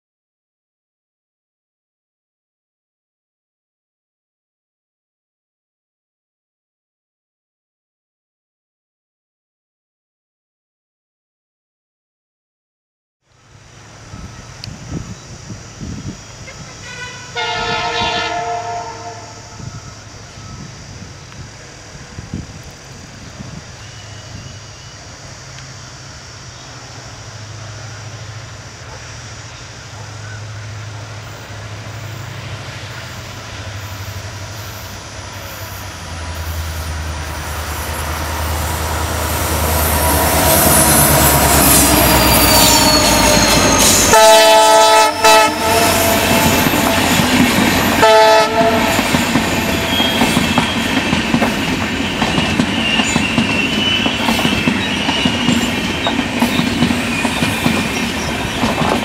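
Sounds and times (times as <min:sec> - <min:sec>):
diesel locomotive engine: 0:13.3 - 0:59.0
train horn: 0:16.4 - 0:20.6, 0:30.4 - 0:51.6
wheel squeal: 0:33.1 - 0:44.2, 0:45.7 - 0:48.0, 0:48.8 - 0:59.0
train wheels clattering: 0:45.6 - 0:59.0.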